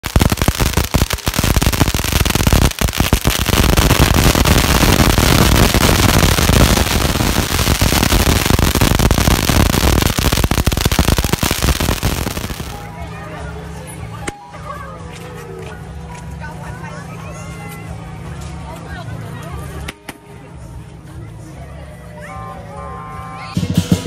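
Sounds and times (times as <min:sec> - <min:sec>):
firecrackers going off: 0:00.0 - 0:12.9.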